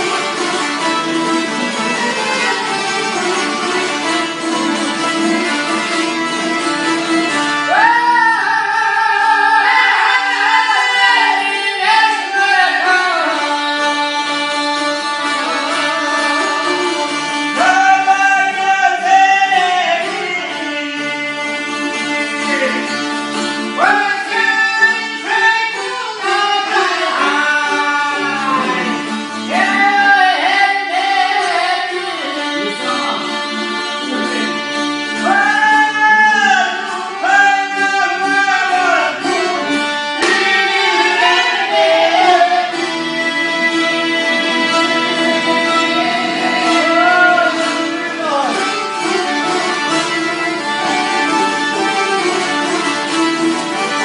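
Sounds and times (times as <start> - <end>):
plucked lutes strummed: 0.0 - 54.0
man singing: 7.6 - 34.6, 35.2 - 43.0, 43.8 - 51.6.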